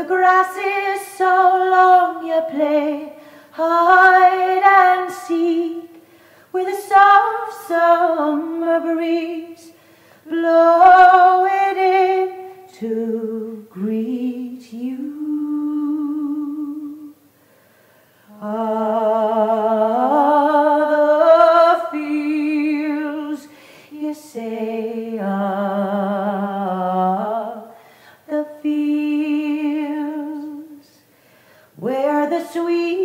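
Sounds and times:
woman singing unaccompanied: 0.0s - 17.2s, 18.3s - 31.1s, 31.8s - 33.0s
singer breathing: 3.2s - 3.6s, 6.0s - 6.5s, 9.7s - 10.3s, 17.3s - 18.3s, 23.4s - 24.0s, 27.7s - 28.3s, 31.0s - 31.8s.

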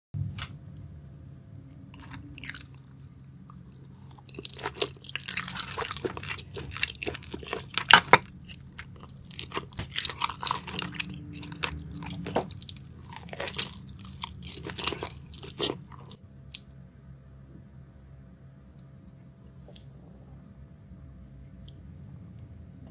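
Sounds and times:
person chewing seafood: 2.0s - 16.8s.

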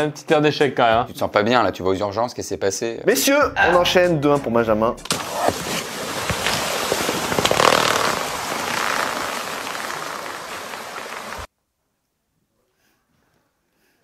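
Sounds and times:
water gushing hiss: 5.1s - 11.5s.

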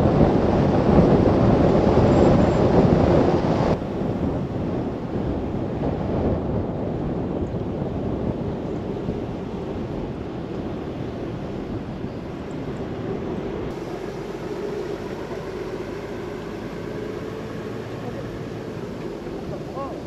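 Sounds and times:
road tyre and engine noise: 0.0s - 20.0s
wind: 0.0s - 20.0s
faint hum rising in pitch: 11.4s - 20.0s.

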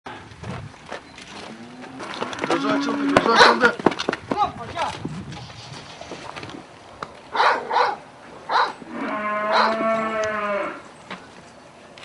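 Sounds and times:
bull bellowing: 1.4s - 3.8s, 7.3s - 10.9s.

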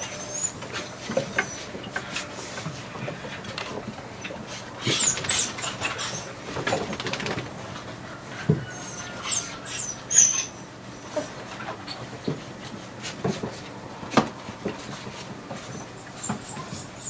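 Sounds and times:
puppies squealing: 0.0s - 2.0s, 4.2s - 7.4s, 8.6s - 11.1s, 15.6s - 17.0s.

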